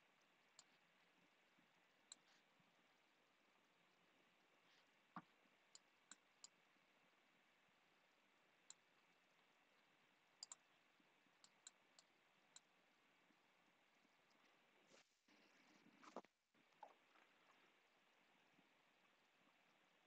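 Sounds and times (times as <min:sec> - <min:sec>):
faint computer mouse clicks: 0:10.4 - 0:10.6.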